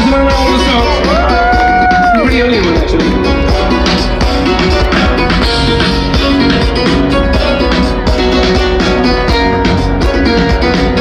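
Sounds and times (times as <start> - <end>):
guitar: 0.0 - 11.0
live band music: 0.0 - 11.0
steady drum beat: 0.0 - 11.0.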